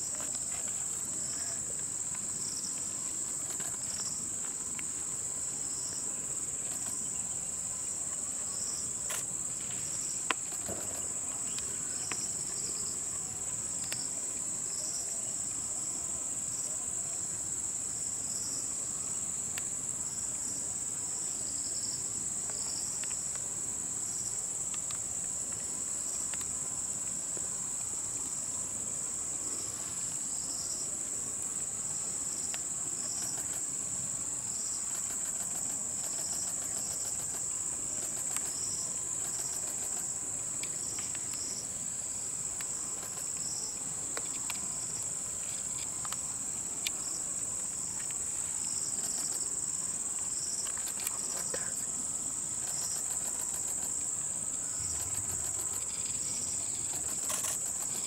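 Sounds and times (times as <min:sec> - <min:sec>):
faint clicks: 0:03.4 - 0:04.1, 0:06.6 - 0:07.0, 0:32.5 - 0:33.6, 0:34.8 - 0:37.4, 0:38.0 - 0:38.6, 0:39.2 - 0:41.4, 0:42.6 - 0:43.5, 0:49.0 - 0:49.4, 0:50.2 - 0:51.9, 0:52.6 - 0:56.2
insect chirping in short pulses: 0:06.6 - 0:07.3, 0:32.0 - 0:33.8, 0:34.5 - 0:45.0, 0:48.5 - 0:58.0
high-pitched insect drone: 0:32.4 - 0:33.7, 0:34.5 - 0:40.2, 0:48.5 - 0:58.0.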